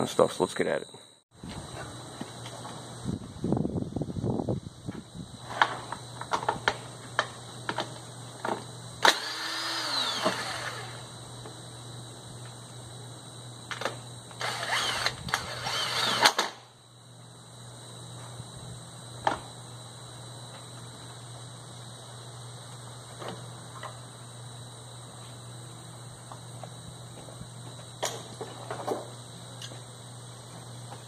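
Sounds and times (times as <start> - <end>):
power tool whining: 9.0 - 11.1, 14.3 - 16.6.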